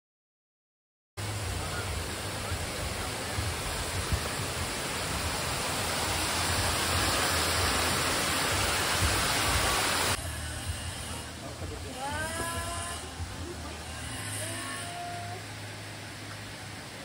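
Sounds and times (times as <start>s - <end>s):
waterfall splashing into pond: 1.2s - 10.2s, 14.4s - 17.0s.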